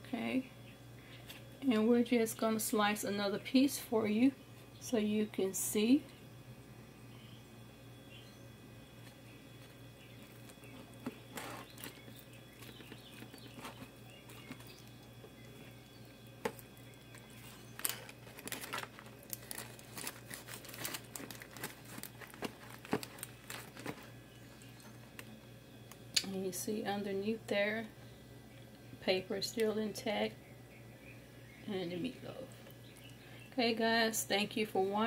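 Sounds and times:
low steady hum: 0:00.0 - 0:35.0
foil and paper crinkling: 0:09.0 - 0:15.7, 0:16.4 - 0:25.3
spatula scraping foil pan: 0:11.2 - 0:11.9.

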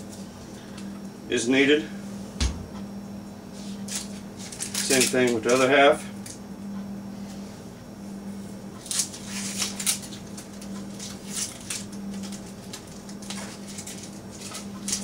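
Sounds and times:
low steady hum: 0:00.0 - 0:15.0
onion skin crackling: 0:08.8 - 0:15.0.

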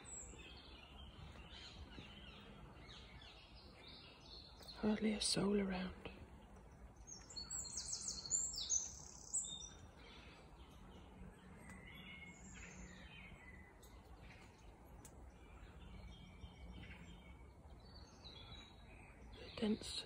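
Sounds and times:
birds chirping and calling: 0:00.0 - 0:20.0
bird singing high trilled notes: 0:07.1 - 0:09.9.

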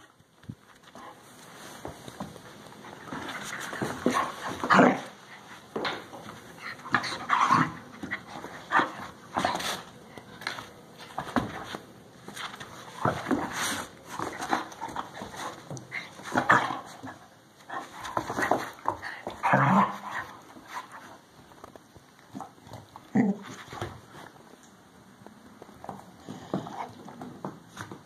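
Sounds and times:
dogs play-fighting vocalizing: 0:06.6 - 0:09.8, 0:14.2 - 0:21.1.

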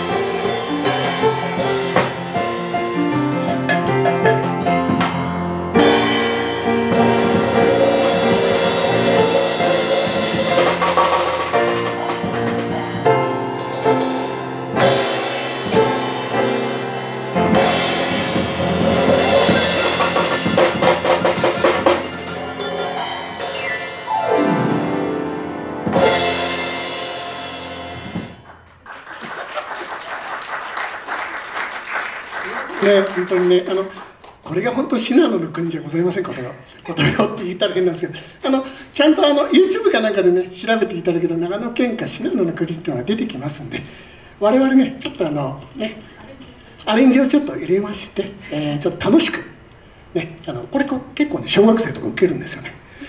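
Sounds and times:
piano and percussion music: 0:00.0 - 0:28.8
audience applause: 0:28.4 - 0:34.4.

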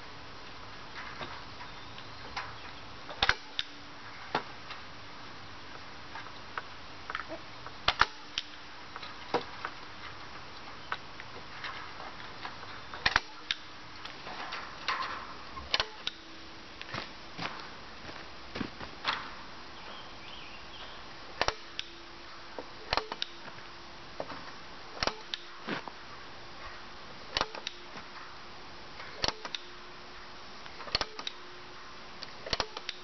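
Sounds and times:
staple gun snapping: 0:15.7 - 0:16.2, 0:22.9 - 0:23.4, 0:27.3 - 0:27.8, 0:29.2 - 0:29.7, 0:30.9 - 0:31.4, 0:32.5 - 0:33.0.

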